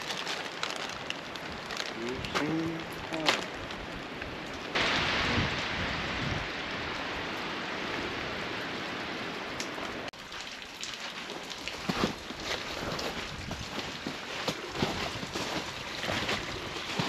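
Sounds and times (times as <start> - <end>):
scattered crackles and knocks: 0.0 - 5.0, 9.6 - 17.0.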